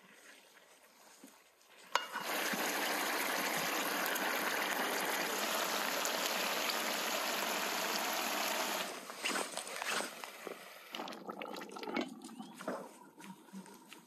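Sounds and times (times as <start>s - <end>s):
stew bubbling in metal pot: 1.9s - 8.9s, 10.4s - 13.4s.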